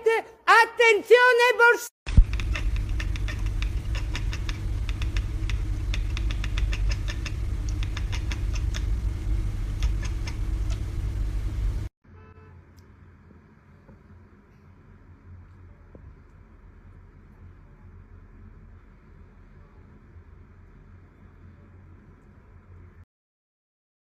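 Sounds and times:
cat chattering jaw clicks: 0:02.1 - 0:11.0
steady low rumble: 0:02.1 - 0:11.9, 0:12.8 - 0:23.0.

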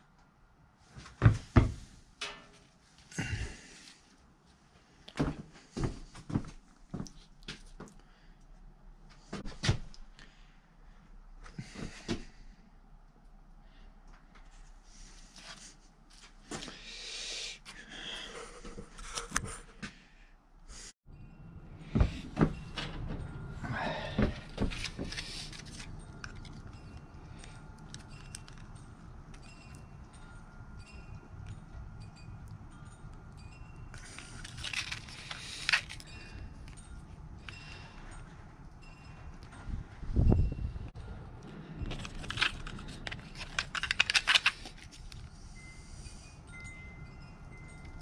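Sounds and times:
rustling and light clicks: 0:34.0 - 0:38.5, 0:41.4 - 0:45.4.

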